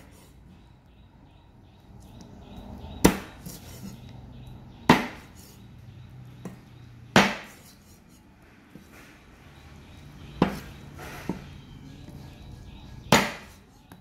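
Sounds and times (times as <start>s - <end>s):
cleaver chopping on wooden block: 3.0s - 3.6s, 4.9s - 5.3s, 6.4s - 7.7s, 10.4s - 10.7s, 13.0s - 13.6s.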